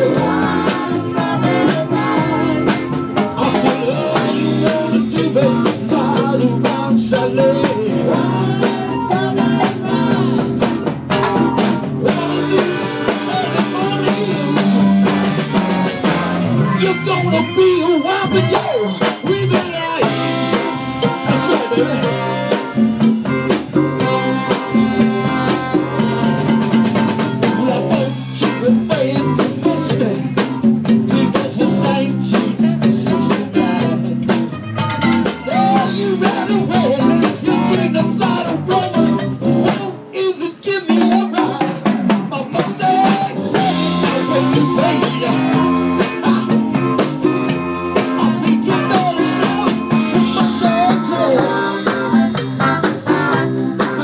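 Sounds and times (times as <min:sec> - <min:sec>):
congas: 0:00.0 - 0:54.0
drum kit: 0:00.0 - 0:54.0
horn section playing: 0:11.2 - 0:28.1, 0:42.9 - 0:54.0.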